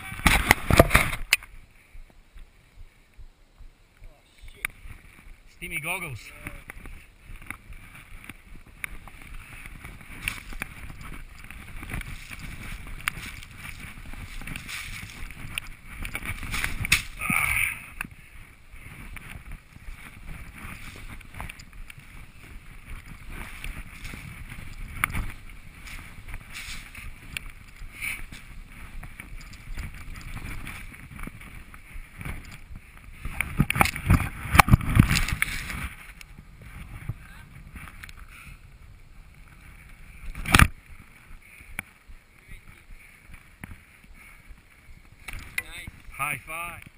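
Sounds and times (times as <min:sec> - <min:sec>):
wind on microphone: 0:00.0 - 0:46.2
skis rushing through snow: 0:05.2 - 0:38.6.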